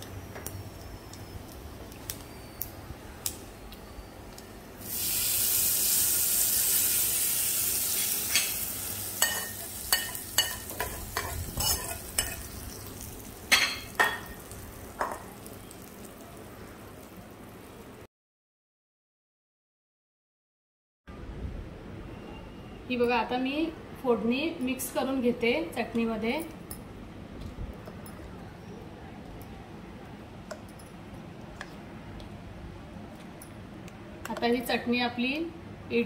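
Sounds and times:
hot oil sizzling: 4.8s - 18.0s.

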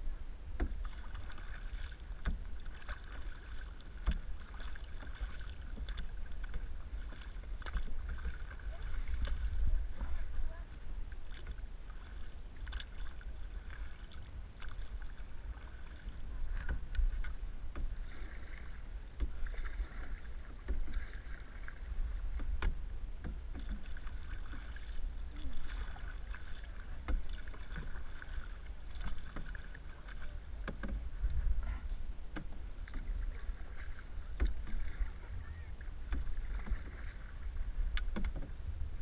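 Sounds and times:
steady low rumble: 0.0s - 39.0s
water splashing against canoe: 0.0s - 39.0s
small knocks: 37.9s - 38.6s.

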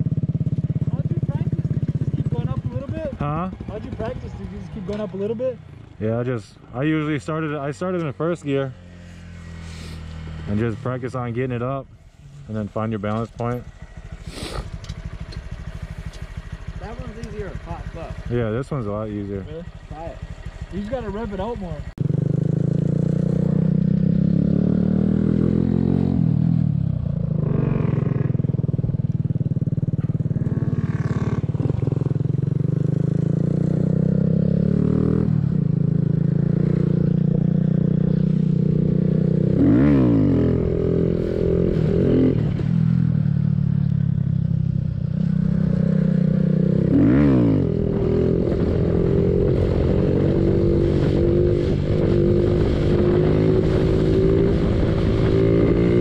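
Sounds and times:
mini bike engine revving: 14.0s - 18.1s, 22.0s - 28.8s, 29.6s - 44.4s, 45.1s - 56.0s.

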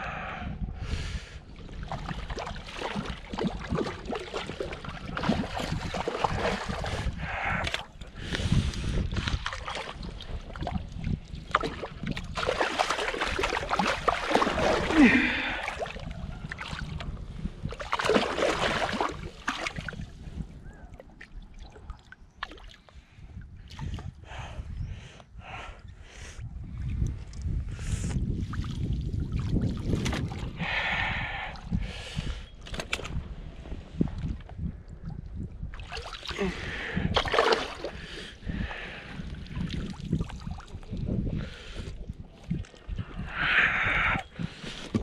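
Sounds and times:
fish splashing in water: 11.6s - 17.0s, 17.8s - 19.9s.

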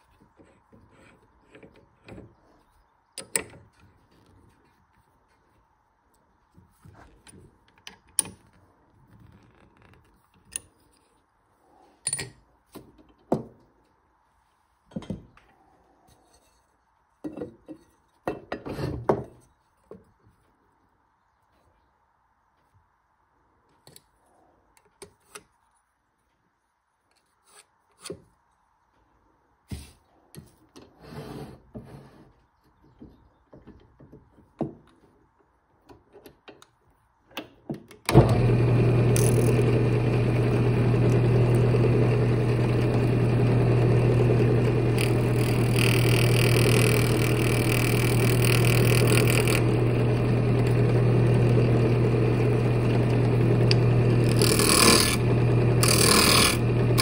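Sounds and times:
wood lathe humming: 38.1s - 57.0s.

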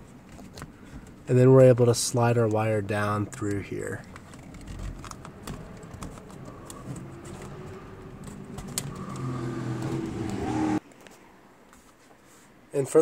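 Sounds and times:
wire clicking and rustling in plastic: 3.3s - 7.6s.

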